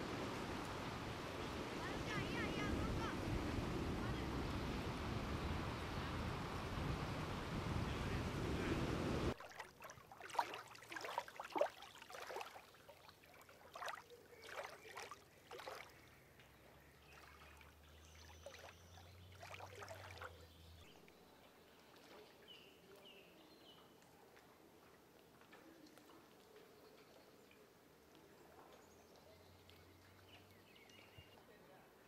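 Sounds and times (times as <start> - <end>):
floodwater rushing: 0.0 - 16.1, 16.9 - 20.7
water lapping and splashing: 8.9 - 20.9.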